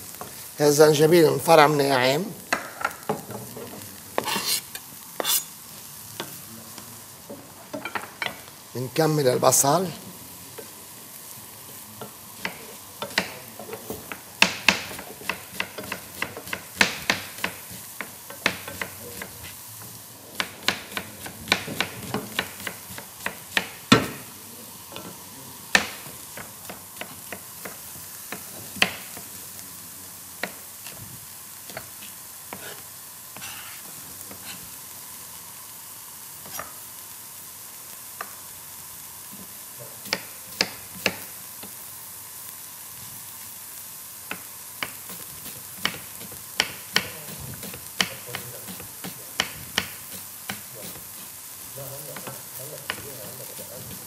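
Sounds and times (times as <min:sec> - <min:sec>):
onions sizzling in a pan: 0:00.0 - 0:54.0
wooden spoon knocking on pan: 0:02.5 - 0:04.3, 0:07.3 - 0:08.4, 0:20.5 - 0:24.3
knife on cutting board: 0:04.2 - 0:05.6, 0:31.7 - 0:32.8, 0:33.4 - 0:34.6, 0:36.4 - 0:36.8.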